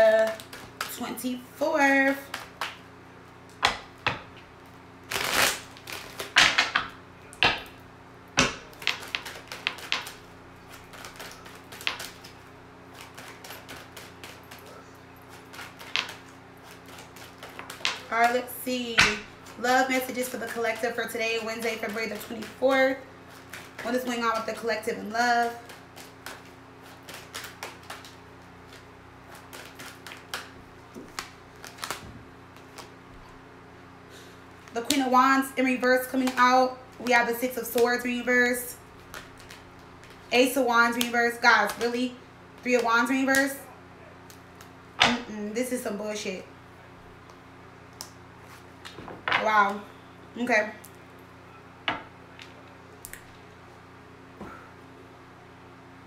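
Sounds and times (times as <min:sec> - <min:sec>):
cards shuffling: 0:00.0 - 0:01.0, 0:05.1 - 0:07.6, 0:08.4 - 0:33.0, 0:39.0 - 0:42.0.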